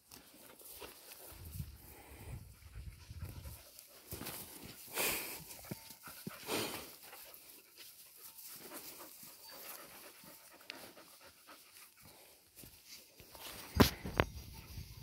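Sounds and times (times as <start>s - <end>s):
dog panting: 2.0s - 12.6s.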